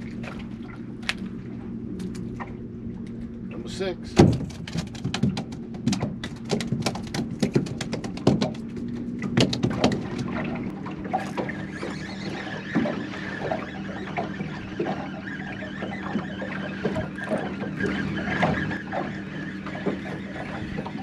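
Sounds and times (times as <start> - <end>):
steady low hum: 0.0 - 21.0
water washing against hull: 0.0 - 21.0
fast run of clicks: 4.5 - 10.0.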